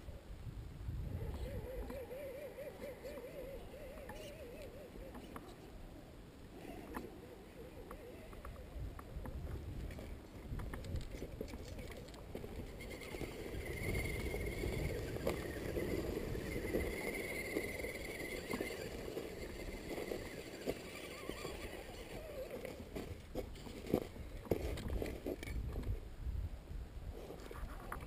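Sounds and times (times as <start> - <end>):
wind rumble: 0.0 - 2.2, 3.5 - 28.0.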